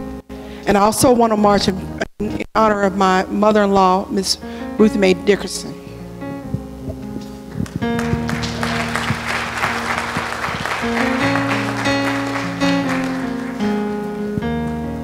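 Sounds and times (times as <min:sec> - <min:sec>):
keyboard chords: 0:02.9 - 0:15.0
congregation applauding: 0:07.5 - 0:14.3.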